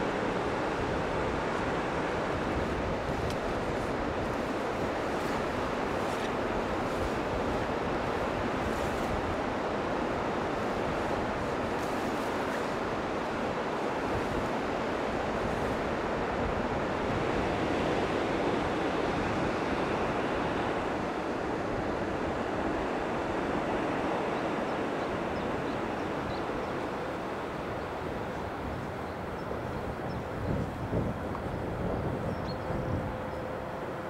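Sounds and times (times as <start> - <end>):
sea surf breaking: 0.0 - 32.2.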